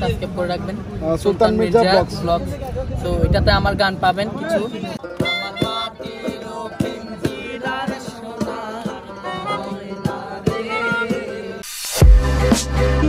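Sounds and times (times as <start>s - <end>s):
melodica melody: 4.9s - 13.0s
percussion strokes: 5.0s - 13.0s.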